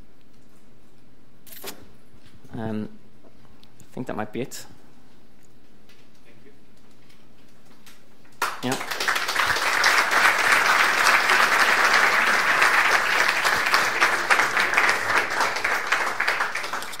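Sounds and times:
audience applauding: 8.4 - 17.0.

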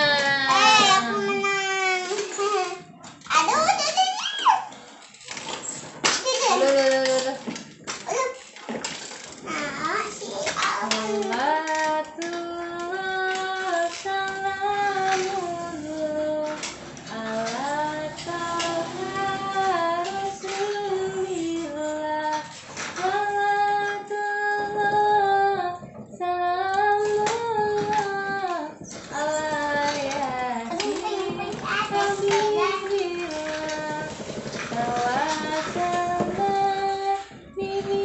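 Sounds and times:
woman singing unaccompanied: 0.0 - 1.5, 10.8 - 38.0.

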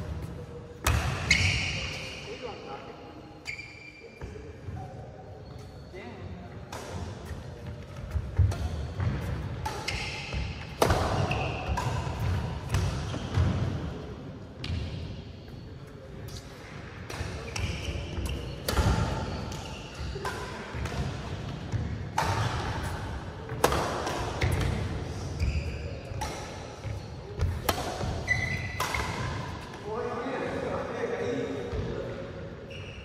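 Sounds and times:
racket striking shuttlecock: 6.7 - 13.0, 22.1 - 24.9, 26.1 - 29.7.

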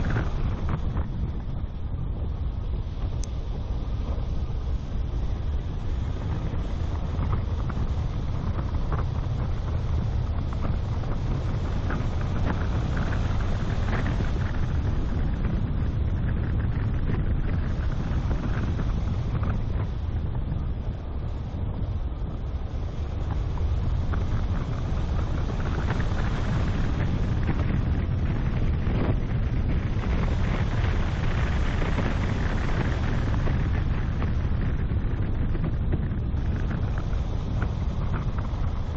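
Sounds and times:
car and tyres rumbling: 0.0 - 38.9
wind buffeting microphone: 0.0 - 38.9
faint ticks: 3.0 - 3.4.

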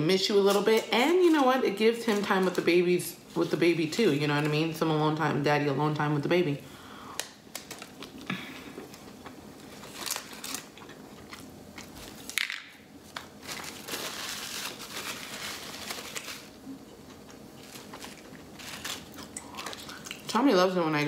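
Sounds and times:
foil wrapper crinkling: 7.5 - 8.3, 9.0 - 20.3
chewing with mouth clicks: 19.1 - 20.3.

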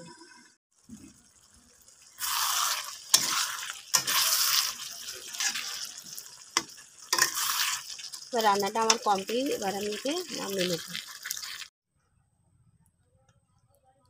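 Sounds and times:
spatula scraping in a pan: 2.1 - 11.7.

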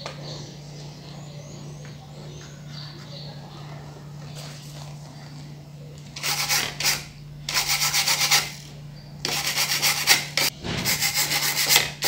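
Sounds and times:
steady low hum: 0.0 - 12.0
scratchy rubbing noise: 6.2 - 8.6, 9.3 - 11.8.

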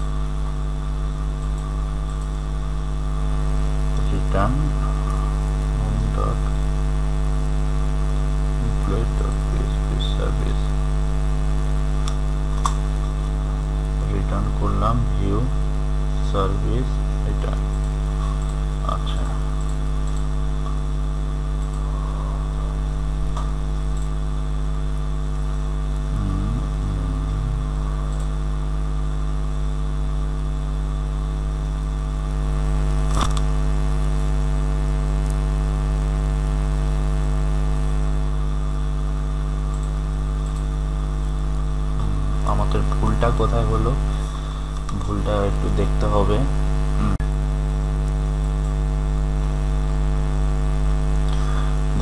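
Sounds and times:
electrical mains hum: 0.0 - 52.0
sharp click: 33.0 - 33.5.

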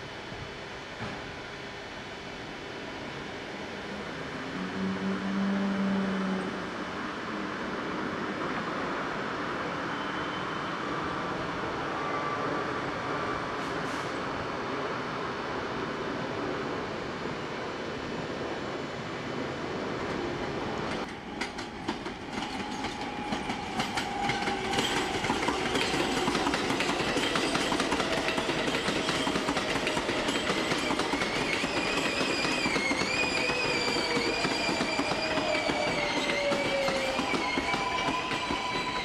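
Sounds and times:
subway train rumble: 0.0 - 39.0
high wheel squeal: 9.8 - 10.9, 30.3 - 39.0.

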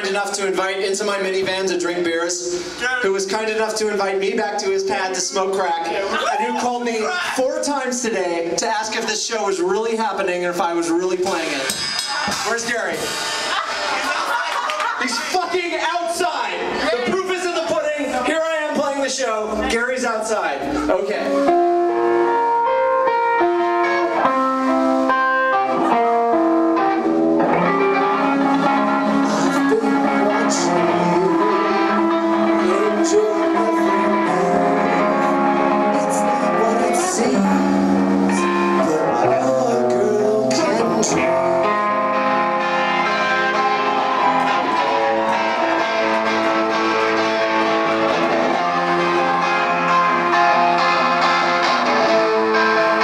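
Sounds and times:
drums: 0.0 - 53.0
electric guitar melody: 3.6 - 7.4, 20.5 - 53.0.

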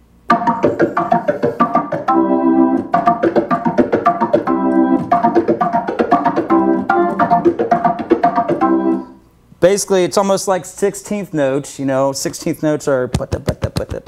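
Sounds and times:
organ playing funk chord stabs: 0.3 - 9.2.

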